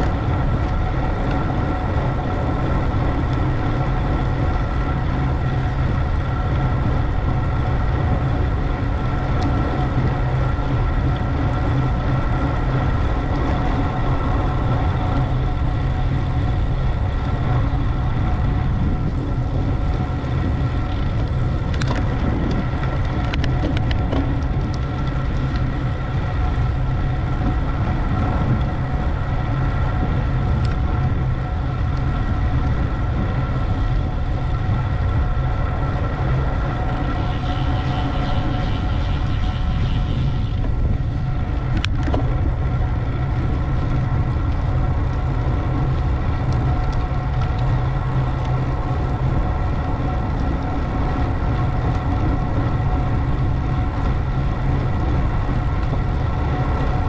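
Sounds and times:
faint steady hum: 0.0 - 57.0
wind buffeting microphone: 0.0 - 57.0.

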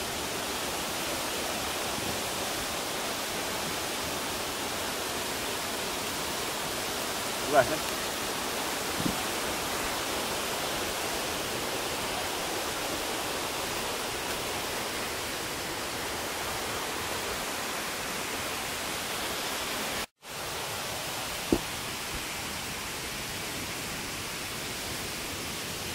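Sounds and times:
outdoor background hiss: 0.0 - 25.9.

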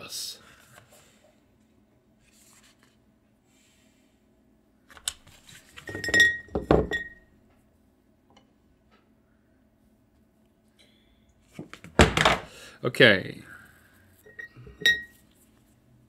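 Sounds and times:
clicks and clinks against glass: 14.3 - 15.1.

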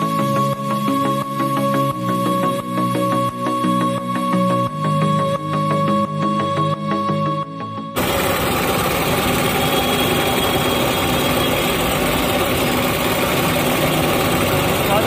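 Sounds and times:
music: 0.0 - 15.0
electric grinding machine: 8.0 - 15.0.

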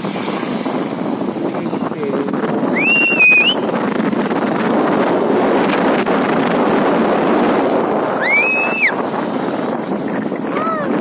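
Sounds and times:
motorbike road noise: 0.0 - 11.0
wind rushing over microphone: 0.0 - 11.0
high whistling tone: 2.7 - 3.6, 8.2 - 9.0.

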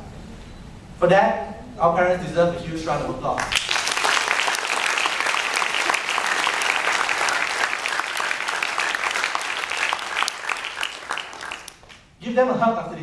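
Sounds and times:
audience applauding: 3.4 - 12.1.

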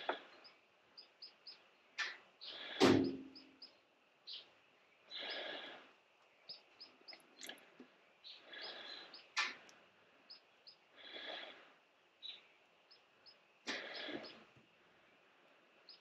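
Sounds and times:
faint bird chirps: 0.0 - 15.2, 15.8 - 16.0.

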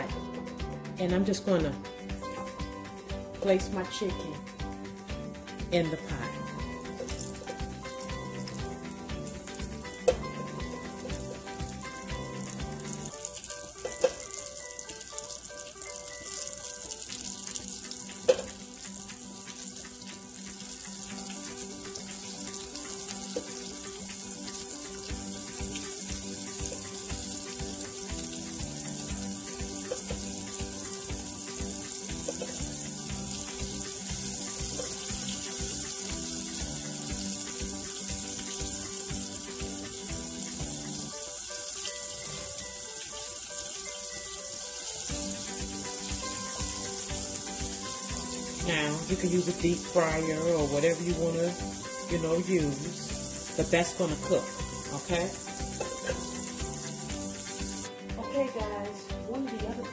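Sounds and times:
food frying in hot oil: 0.8 - 57.9.

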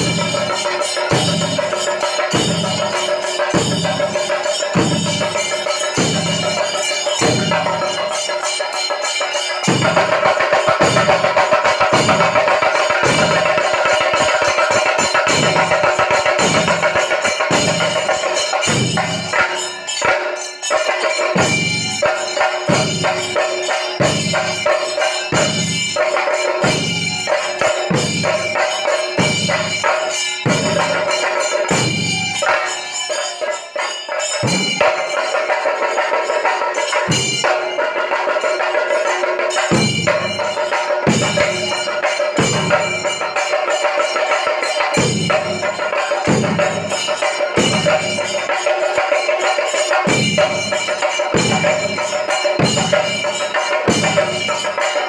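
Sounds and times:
drums beating heavy pulse: 0.0 - 32.5, 39.0 - 43.6, 44.9 - 48.6.

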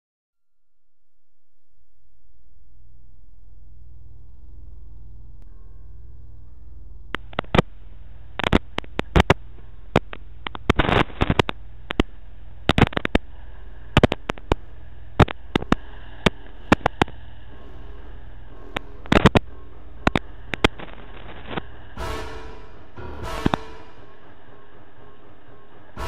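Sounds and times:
low hum: 0.4 - 26.0
sharp crackles and pops: 7.1 - 17.2, 18.8 - 21.7.

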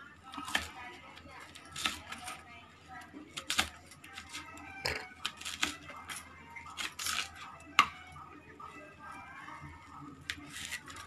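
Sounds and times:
knife chopping leaves on plastic: 0.2 - 2.4, 3.2 - 8.0, 10.3 - 11.0.

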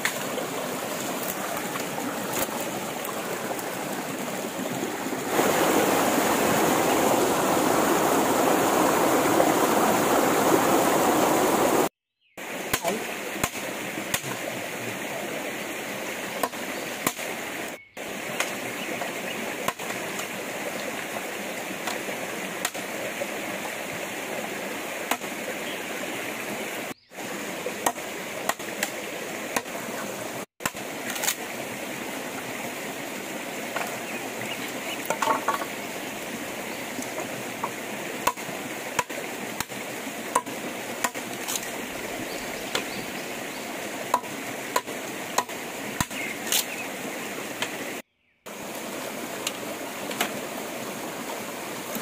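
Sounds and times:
steady rushing noise: 0.7 - 11.9
chopping on wood and bamboo: 12.7 - 14.4, 16.4 - 17.3, 22.6 - 22.9, 25.1 - 25.3, 27.8 - 29.0, 29.6 - 29.8, 30.6 - 31.4, 35.0 - 35.7, 37.1 - 41.6, 44.1 - 46.7, 49.4 - 50.4.

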